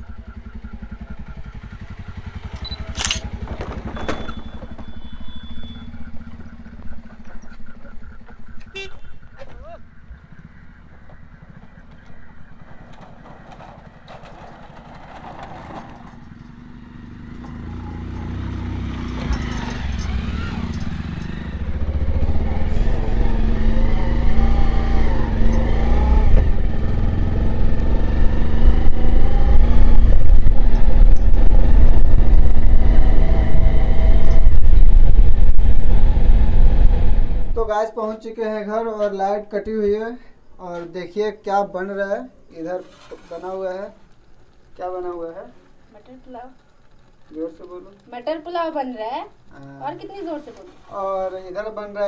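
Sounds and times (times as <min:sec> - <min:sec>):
motorcycle engine running: 0:00.0 - 0:37.6
wind rumbling on microphone: 0:27.6 - 0:37.6.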